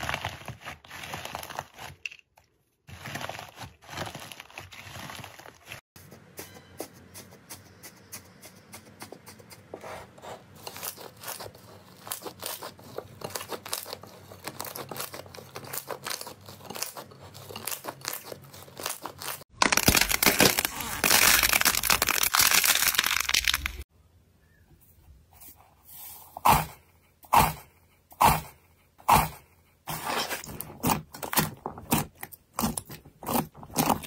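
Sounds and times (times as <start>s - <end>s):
slime crackling and popping: 19.1s - 23.8s.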